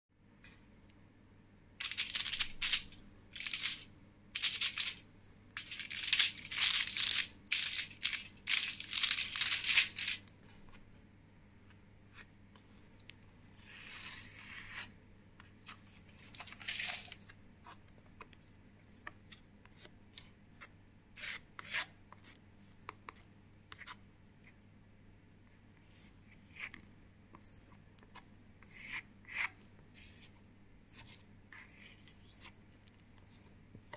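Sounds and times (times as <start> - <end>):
plastic card scraping paint: 5.6 - 10.2, 13.6 - 14.9
aluminium foil crinkling: 5.6 - 10.3, 16.3 - 17.2.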